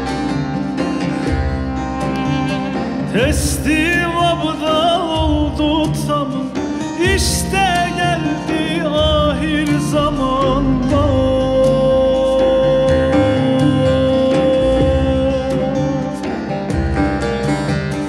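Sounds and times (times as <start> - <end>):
folk band with lute: 0.0 - 18.0
frame drum beat: 0.0 - 18.0
man singing ornamented vocals: 2.2 - 16.5.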